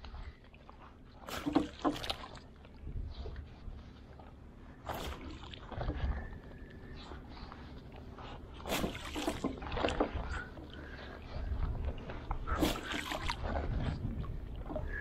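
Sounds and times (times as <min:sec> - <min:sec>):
water splashing around boat: 0:00.0 - 0:15.0
low rumble: 0:09.5 - 0:15.0.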